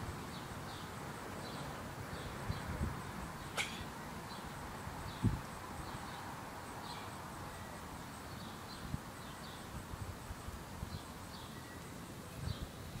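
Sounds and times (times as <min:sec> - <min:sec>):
steady hiss: 0:00.0 - 0:13.0
faint bird chirps: 0:03.4 - 0:09.8, 0:10.9 - 0:12.8.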